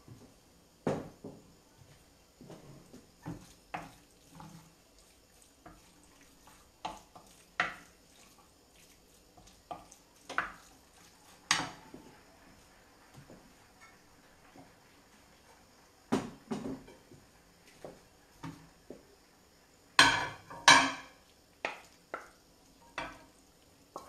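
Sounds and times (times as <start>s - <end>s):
wooden spoon knocking on metal pan: 0.8s - 1.4s, 6.8s - 7.9s, 11.5s - 12.1s, 16.1s - 17.2s, 20.0s - 23.3s.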